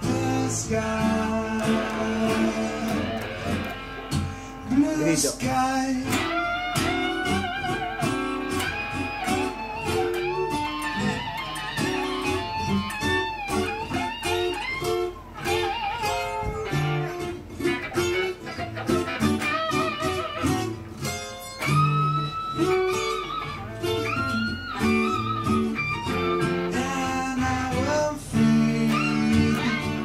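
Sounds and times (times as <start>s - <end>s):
electric guitar melody with vibrato: 0.0s - 5.2s, 6.0s - 30.0s.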